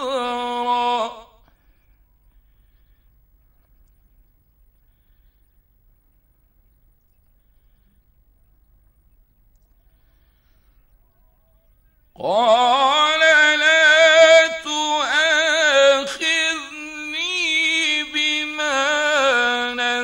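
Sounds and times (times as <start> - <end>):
man chanting recitation: 12.2 - 20.0.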